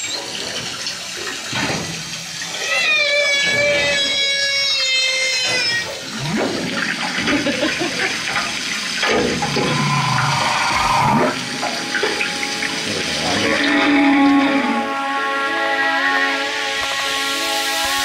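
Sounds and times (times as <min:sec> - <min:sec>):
whale song over loudspeaker: 0:09.4 - 0:18.0
watery hiss: 0:16.8 - 0:18.0.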